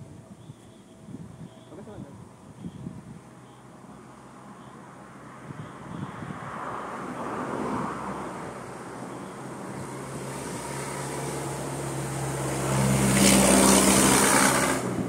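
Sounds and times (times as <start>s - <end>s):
vehicle passing close by: 3.3s - 15.0s.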